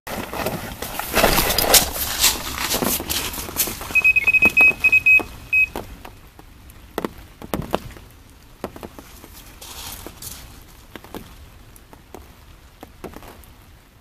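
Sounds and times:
electronic alarm beeping rapidly: 4.0 - 5.8.

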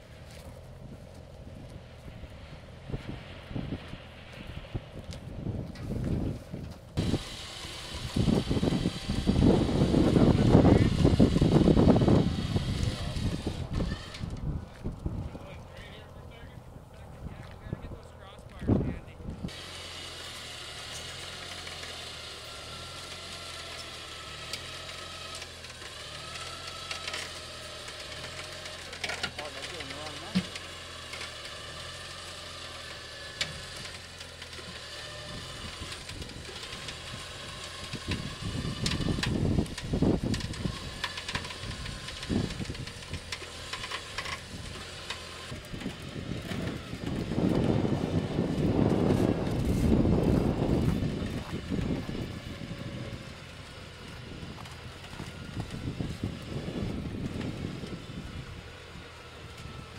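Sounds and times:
engine idling: 0.0 - 59.9
wind buffeting microphone: 0.7 - 19.6, 35.1 - 59.9.

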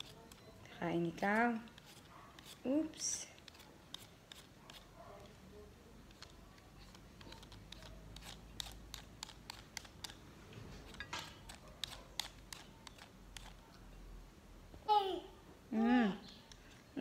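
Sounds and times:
peeler scraping a carrot: 0.0 - 0.5, 1.1 - 5.0, 6.1 - 10.2, 10.8 - 13.6.

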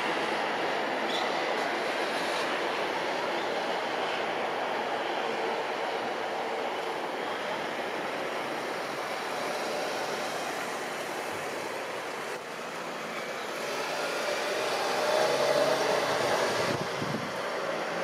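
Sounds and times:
jet engines rushing: 7.0 - 18.0.

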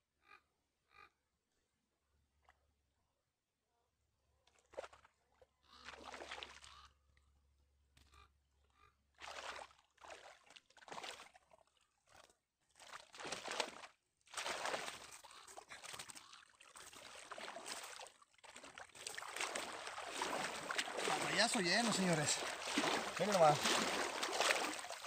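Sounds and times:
water splashing and sloshing: 4.5 - 6.9, 9.2 - 25.0
water pouring and dripping: 14.4 - 25.0.

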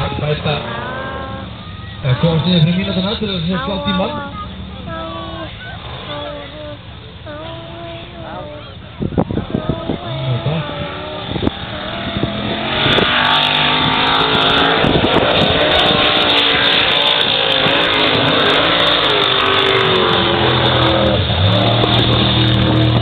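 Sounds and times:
off-road vehicle engine revving: 0.0 - 23.0.

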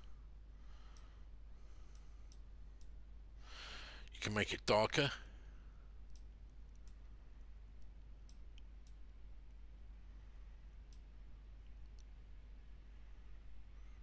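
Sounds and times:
low steady hum: 0.0 - 14.0
computer mouse clicks: 8.2 - 9.0, 10.9 - 11.1.

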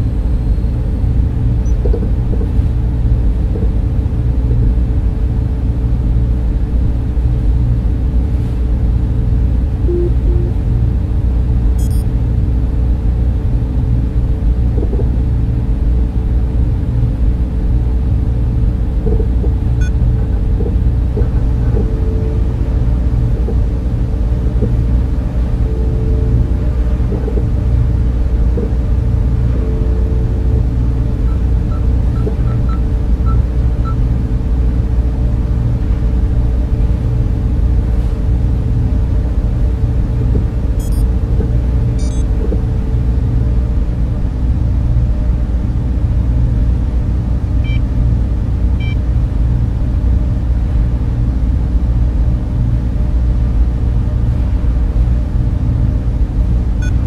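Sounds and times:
low rumble and machine hum: 0.0 - 57.0
faint electronic beeps: 9.9 - 10.6, 11.8 - 12.1, 40.8 - 41.1, 42.0 - 42.3
short beeps: 9.9 - 10.6, 11.8 - 12.1, 40.8 - 41.1, 42.0 - 42.3.

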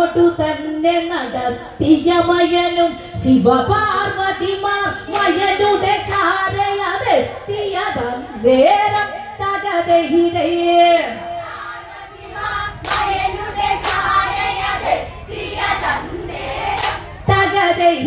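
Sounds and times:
women singing a folk song: 0.0 - 18.0
hand claps: 5.1 - 5.4, 8.9 - 9.2, 12.8 - 13.2, 13.8 - 14.2, 16.7 - 17.1.

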